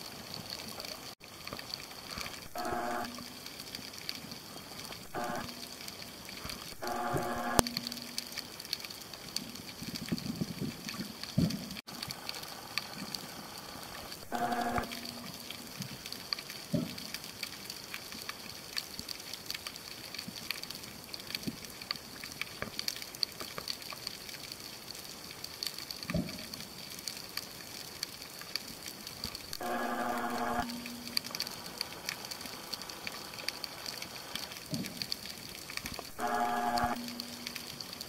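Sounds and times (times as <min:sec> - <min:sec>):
dense underwater clicking crackle: 0:00.0 - 0:38.0
low hum: 0:29.6 - 0:34.4, 0:36.0 - 0:38.0.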